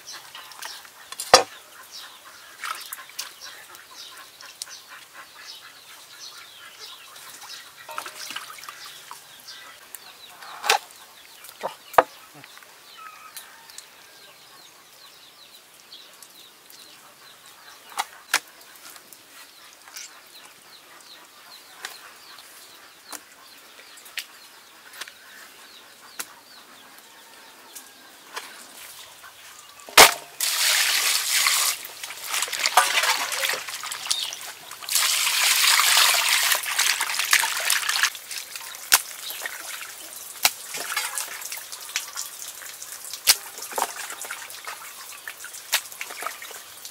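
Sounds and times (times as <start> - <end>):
water pouring and splashing: 2.4 - 3.7, 7.1 - 9.8, 28.5 - 46.9.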